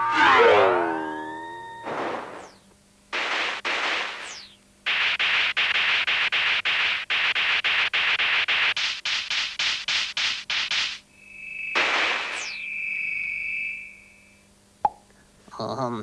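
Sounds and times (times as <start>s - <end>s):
falling whistle: 0.0s - 2.6s, 11.1s - 14.5s
chopped hiss pulses: 0.5s - 14.5s
synthesized hiss bursts: 1.9s - 11.1s.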